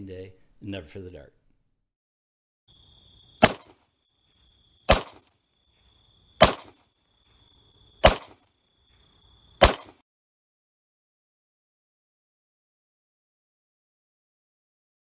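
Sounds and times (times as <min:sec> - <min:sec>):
crickets chirping: 0:02.7 - 0:10.0
sharp hit: 0:06.4 - 0:06.8.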